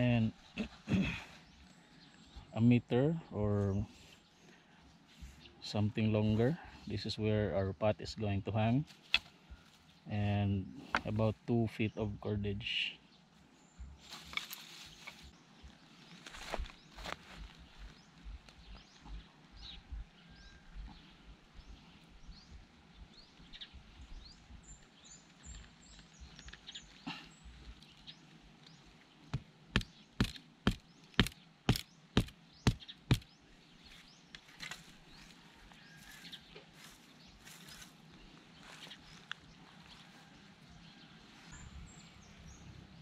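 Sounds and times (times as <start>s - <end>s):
rustling in dry grass: 3.9s - 5.6s, 13.3s - 29.6s, 33.5s - 43.0s
sharp knocks on wood: 29.3s - 33.3s.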